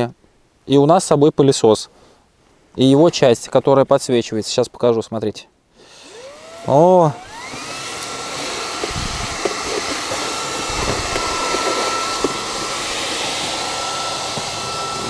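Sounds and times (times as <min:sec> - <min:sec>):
stick vacuum whine and suction: 0:05.9 - 0:15.0.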